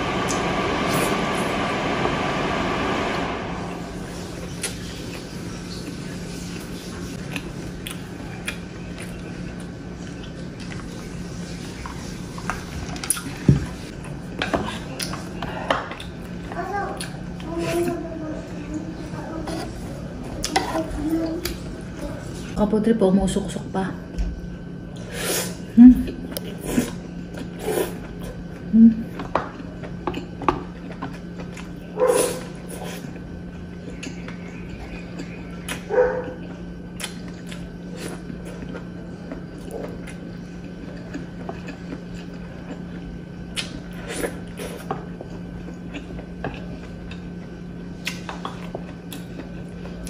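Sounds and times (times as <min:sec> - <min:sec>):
steady low hum: 0:00.0 - 0:50.0
close chewing and wet mouth sounds: 0:06.6 - 0:11.2, 0:29.6 - 0:50.0
person humming low: 0:28.7 - 0:29.1.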